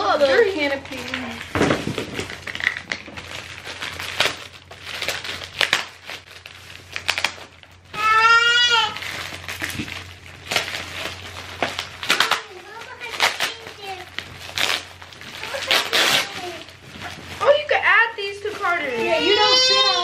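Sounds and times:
plastic bag crinkling: 0:00.0 - 0:20.0
child calling out: 0:07.9 - 0:09.0, 0:18.9 - 0:20.0.

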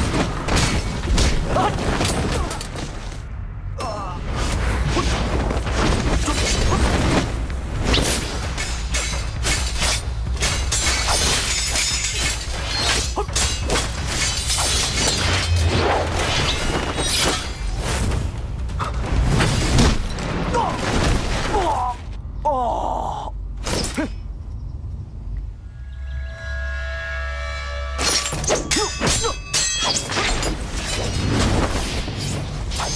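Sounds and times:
sword blades clashing: 0:07.9 - 0:17.8, 0:27.9 - 0:31.5.

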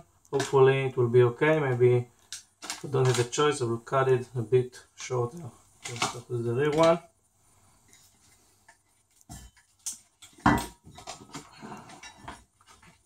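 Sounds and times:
rustling and clicking of handling: 0:00.2 - 0:00.8, 0:01.6 - 0:03.5, 0:05.4 - 0:07.1, 0:07.8 - 0:13.0.

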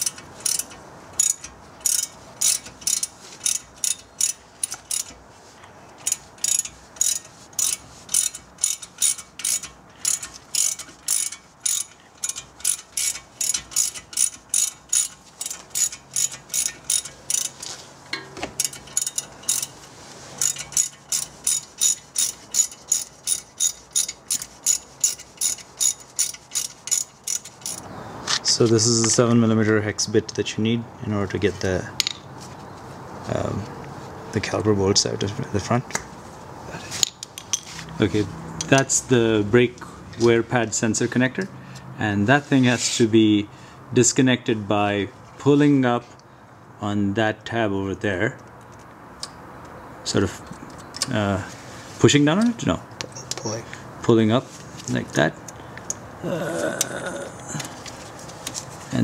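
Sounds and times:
hand ratchet clicking: 0:00.0 - 0:05.2, 0:06.0 - 0:27.8.

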